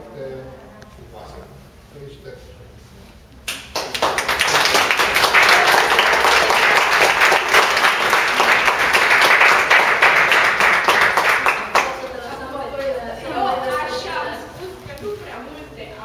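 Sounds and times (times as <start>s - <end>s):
audience applauding: 3.5s - 12.2s.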